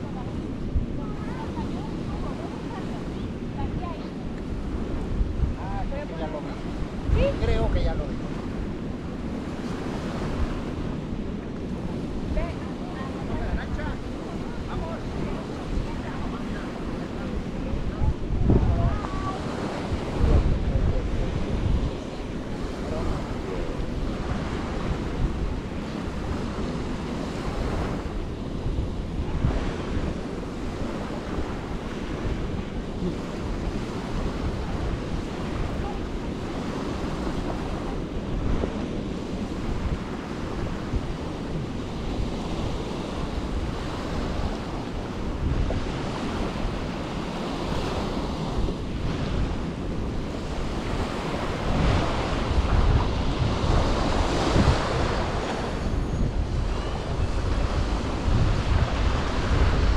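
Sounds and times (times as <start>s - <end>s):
small waves washing on sand: 0.0s - 59.9s
wind buffeting microphone: 0.0s - 59.9s.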